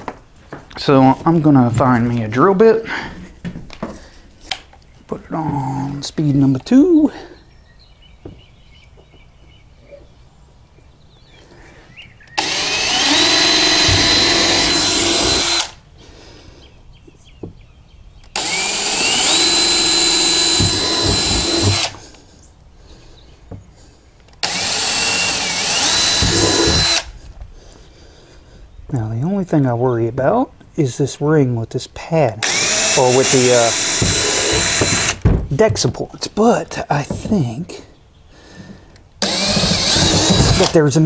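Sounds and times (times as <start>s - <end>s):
power drill whining: 12.3s - 15.8s, 18.3s - 22.2s, 24.4s - 27.3s, 32.4s - 35.2s, 38.5s - 40.8s.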